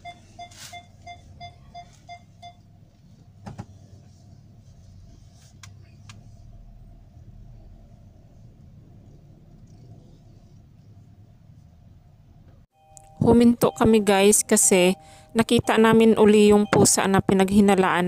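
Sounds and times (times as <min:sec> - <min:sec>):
car warning chime beeping: 0:00.0 - 0:02.6, 0:12.8 - 0:17.7
low hum of car running: 0:00.0 - 0:12.7.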